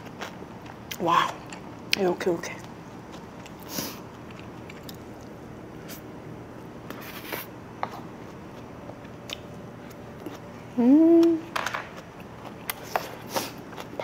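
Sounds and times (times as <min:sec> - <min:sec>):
person chewing: 0:00.0 - 0:01.6, 0:03.0 - 0:06.0, 0:07.9 - 0:10.4, 0:12.0 - 0:14.0
person humming: 0:10.8 - 0:11.5.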